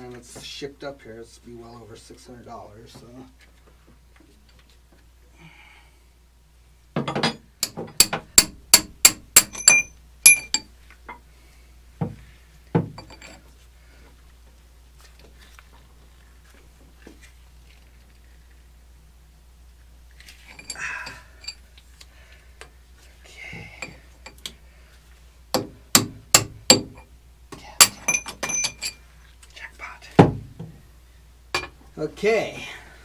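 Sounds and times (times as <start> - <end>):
hammer striking metal: 7.1 - 10.7, 25.6 - 27.0.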